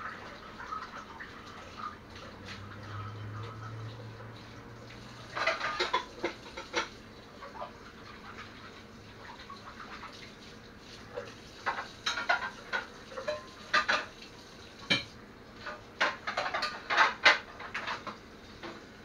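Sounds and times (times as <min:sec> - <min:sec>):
dishes clinking in sink: 0:05.2 - 0:07.7, 0:11.2 - 0:14.2, 0:14.8 - 0:18.8.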